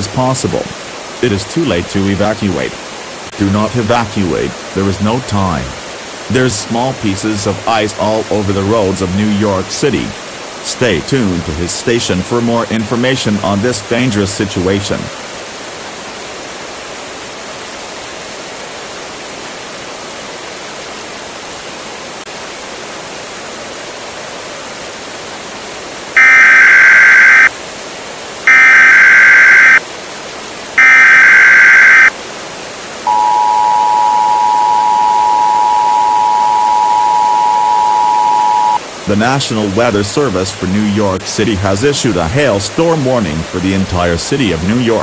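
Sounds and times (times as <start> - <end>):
steady hiss: 0.0 - 45.0
data tone bursts: 26.2 - 27.5, 28.5 - 29.8, 30.8 - 32.1, 33.1 - 38.8
two-tone attention signal: 26.2 - 27.5, 28.5 - 29.8, 30.8 - 32.1, 33.1 - 38.8.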